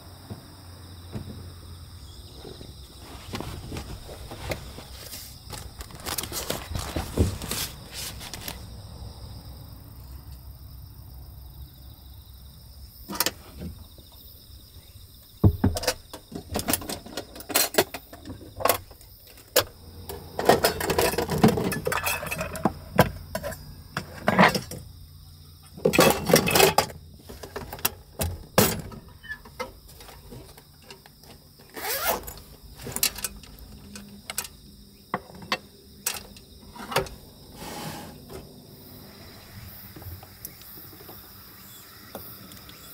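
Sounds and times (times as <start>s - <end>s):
high insect drone: 0.0s - 42.9s
rustling and scraping: 1.1s - 8.9s, 15.8s - 25.0s, 25.7s - 41.4s
items clinking in metal toolbox: 15.8s - 24.8s, 25.8s - 31.0s.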